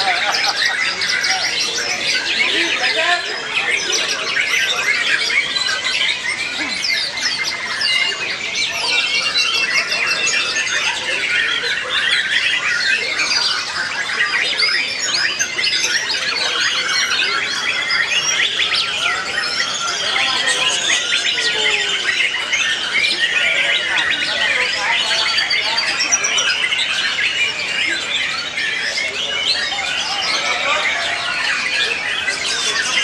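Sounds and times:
birds singing whistles and chirps: 0.0s - 33.0s.

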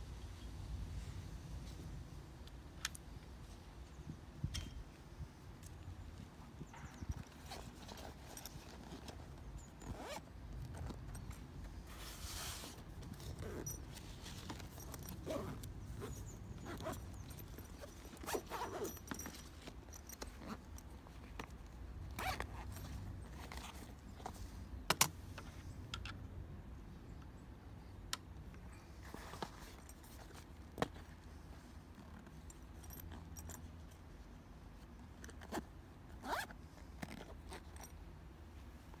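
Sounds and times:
bag rustling and handling knocks: 6.6s - 24.4s
zip on a fabric bag closing: 7.0s - 11.3s, 11.9s - 20.7s, 22.1s - 23.9s, 35.3s - 37.9s.

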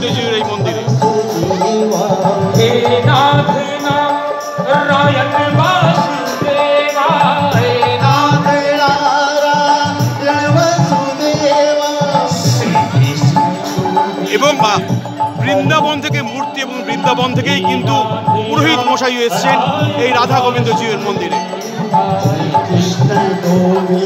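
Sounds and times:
person singing: 0.0s - 24.0s
repeating drum beat: 0.0s - 24.0s.

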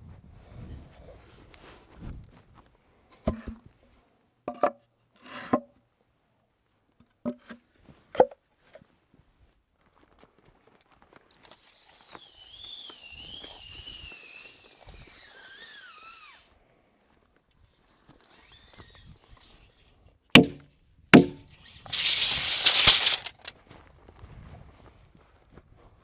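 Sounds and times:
high wavering whistle: 11.9s - 16.0s.

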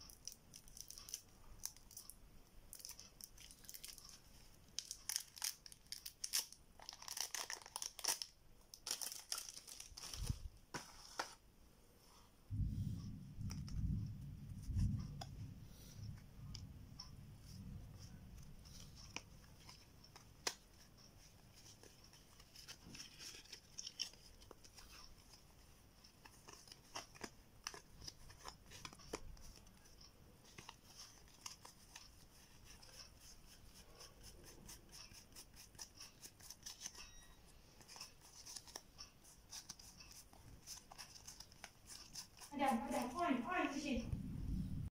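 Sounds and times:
playing cards clicking and rustling: 2.8s - 11.4s, 18.0s - 37.0s, 37.8s - 43.2s.

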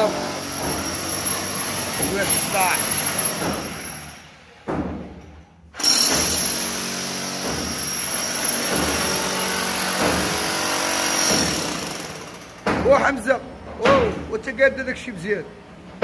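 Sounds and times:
power tool whining on masonry: 0.0s - 4.3s, 5.8s - 12.6s.

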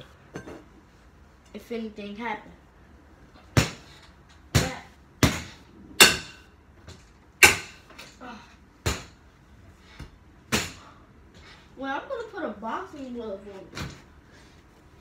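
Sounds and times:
stick whacking punching bag: 3.5s - 3.9s, 4.5s - 6.5s, 8.8s - 9.2s, 10.5s - 10.9s.

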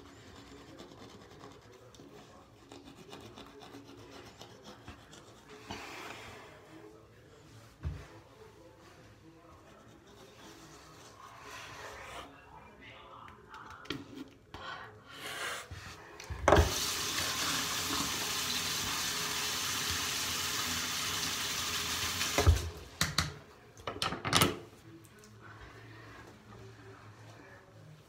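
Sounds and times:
water running into basin: 16.5s - 23.0s.

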